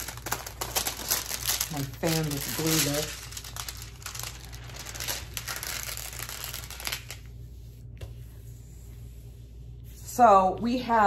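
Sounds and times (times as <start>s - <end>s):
plastic film crinkling: 0.0s - 7.5s.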